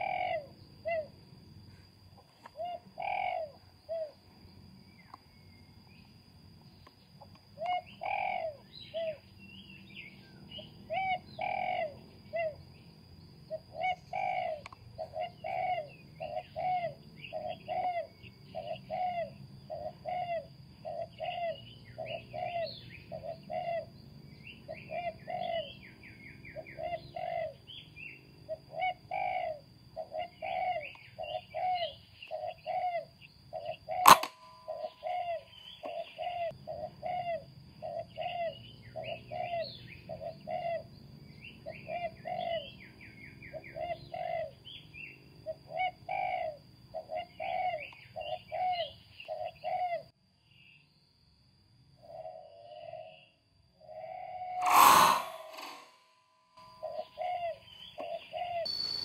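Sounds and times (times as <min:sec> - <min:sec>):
birds calling: 0:07.6 - 0:12.6, 0:13.5 - 0:50.1, 0:54.5 - 0:55.9, 0:56.6 - 0:59.0
higher bird chirps: 0:28.9 - 0:37.2, 0:54.5 - 0:56.0, 0:56.6 - 0:59.0
air rifle firing: 0:34.1 - 0:34.3.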